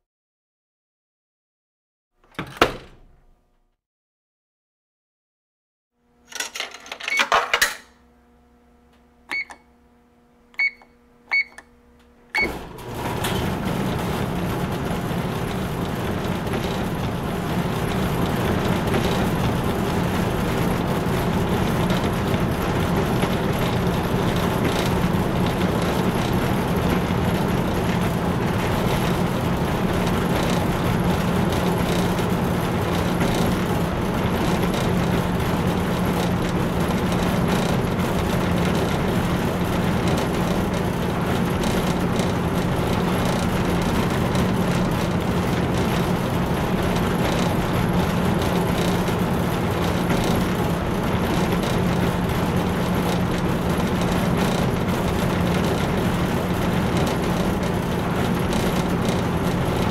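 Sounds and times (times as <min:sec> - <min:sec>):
washing machine whirring hum: 0:02.2 - 0:03.5, 0:06.0 - 0:59.9
short electronic beeps: 0:09.3 - 0:09.6, 0:10.6 - 0:11.6.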